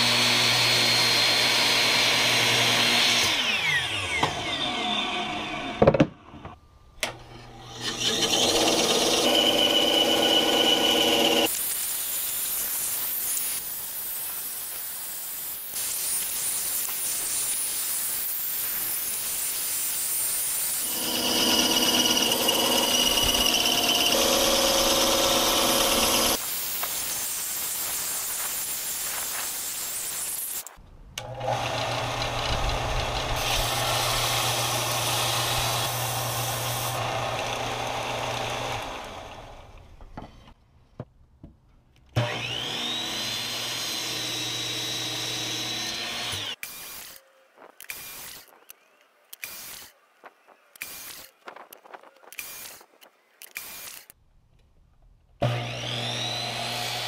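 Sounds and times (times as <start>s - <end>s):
bandsaw cutting wood: 0.0s - 6.0s, 7.2s - 14.8s, 20.7s - 27.1s, 31.2s - 39.8s, 42.2s - 47.2s, 55.4s - 57.0s
belt sander sanding wood: 7.8s - 30.8s
short clipped tool sounds: 50.7s - 54.2s
motor spinning up with whine: 55.4s - 56.9s.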